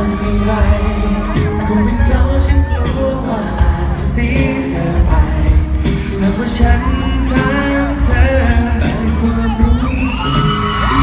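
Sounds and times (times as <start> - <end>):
man singing into microphone: 0.0 - 11.0
pop backing track with bass: 0.0 - 11.0.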